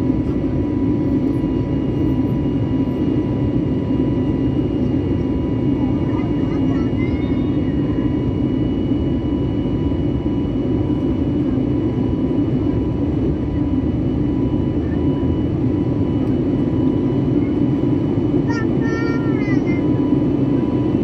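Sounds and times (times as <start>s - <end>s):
jet engine rush in cabin: 0.0s - 21.0s.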